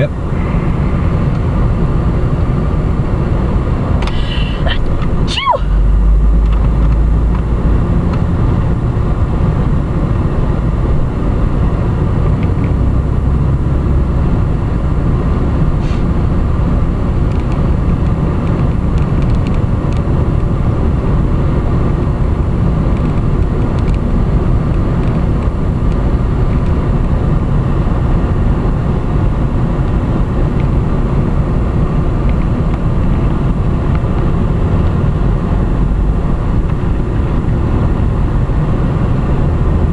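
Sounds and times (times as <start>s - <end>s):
car road and engine noise: 0.0s - 39.9s.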